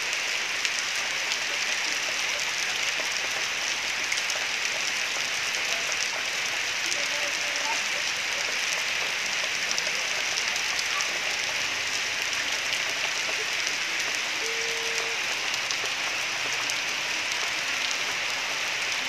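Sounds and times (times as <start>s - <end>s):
short tone: 14.4s - 15.2s.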